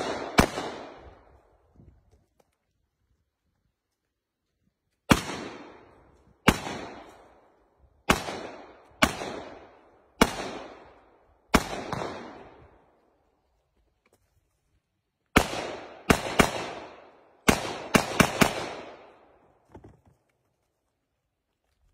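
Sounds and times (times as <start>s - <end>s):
shotgun shots echoing: 0.0s - 1.3s, 5.1s - 7.4s, 8.0s - 12.7s, 15.4s - 19.3s.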